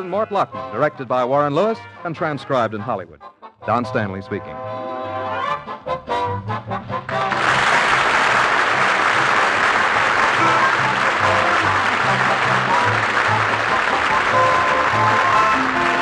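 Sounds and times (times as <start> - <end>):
closing theme music: 5.9 - 16.0
studio audience applause: 7.1 - 16.0.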